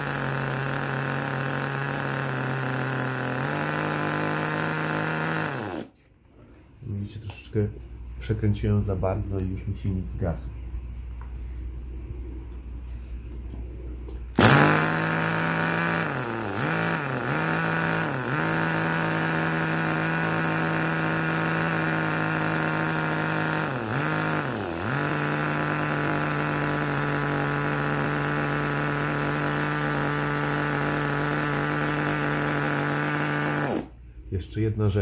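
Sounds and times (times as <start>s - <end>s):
small nitro engine idling: 0.0s - 5.9s, 14.3s - 34.0s.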